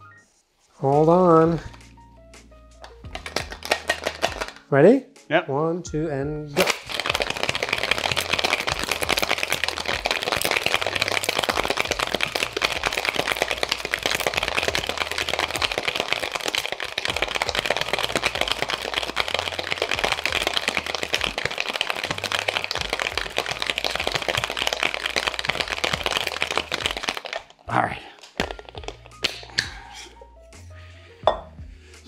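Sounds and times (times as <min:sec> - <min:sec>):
ice rattling in cocktail shaker: 0:03.1 - 0:04.6, 0:06.6 - 0:29.6.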